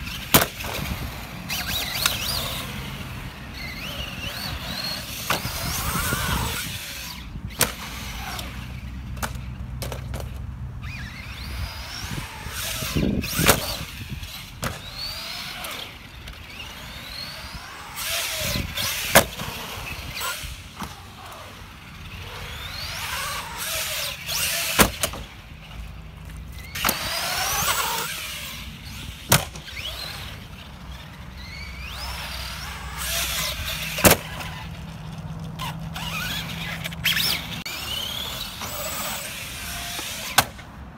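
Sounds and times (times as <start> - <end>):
electric motor whining: 0.0 - 9.5, 10.8 - 40.6
toy truck landing on concrete: 0.2 - 0.9, 7.6 - 8.6, 11.8 - 16.5, 17.8 - 21.4, 22.7 - 25.3, 26.7 - 28.6, 29.2 - 30.3, 32.0 - 34.6.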